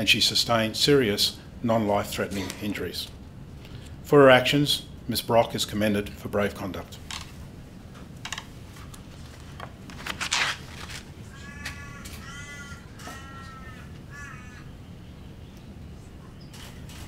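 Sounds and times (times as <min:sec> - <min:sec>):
crow cawing: 0:11.2 - 0:14.7.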